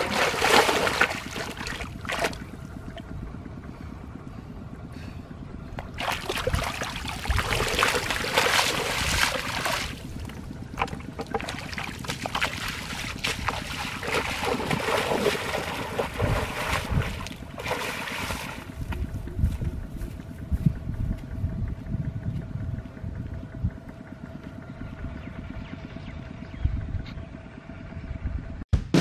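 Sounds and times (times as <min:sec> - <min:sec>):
floodwater splashing: 0:00.0 - 0:03.1, 0:05.8 - 0:19.1
wind rumble on microphone: 0:00.7 - 0:28.6.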